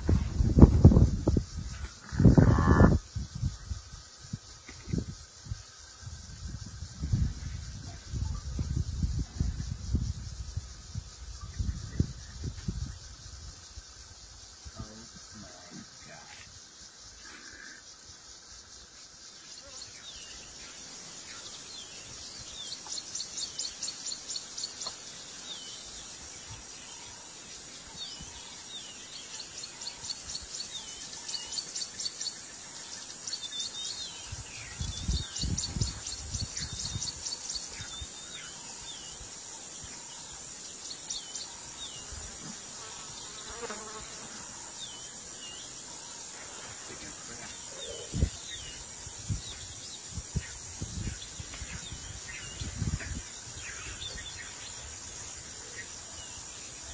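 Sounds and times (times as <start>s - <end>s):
insects chirping: 0.0s - 56.9s.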